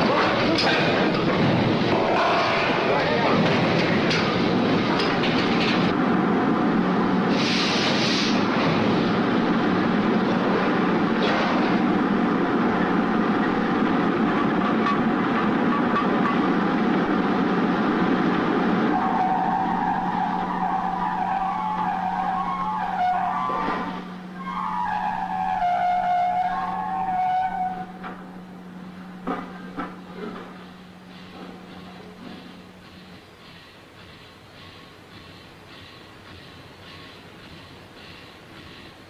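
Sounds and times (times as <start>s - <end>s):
constant hum: 0.0s - 39.0s
short hiss: 7.3s - 8.4s
high squealing whine: 18.8s - 29.9s.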